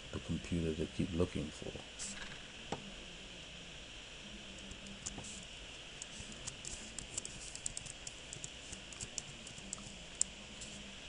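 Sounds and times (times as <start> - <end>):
keyboard keys clicking: 6.4 - 10.3.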